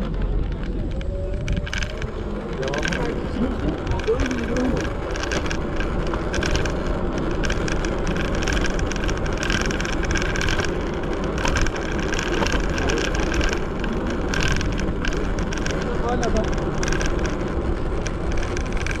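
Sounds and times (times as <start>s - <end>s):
scooter tyres rattling on pavement: 0.0s - 19.0s.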